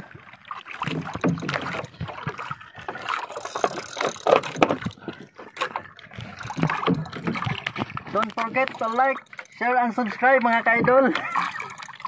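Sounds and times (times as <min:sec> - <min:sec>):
water lapping against boat hull: 0:00.0 - 0:12.0
knocks and clicks of handling: 0:03.4 - 0:09.6.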